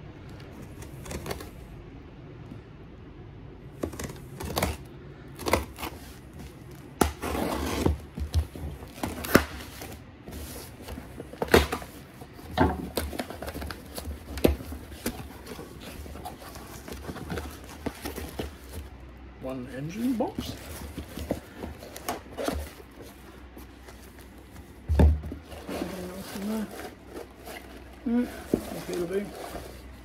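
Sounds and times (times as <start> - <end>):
knife cutting packing tape: 0.6 - 1.6, 3.8 - 10.0
cardboard flaps rustling: 3.7 - 19.0, 19.9 - 30.0.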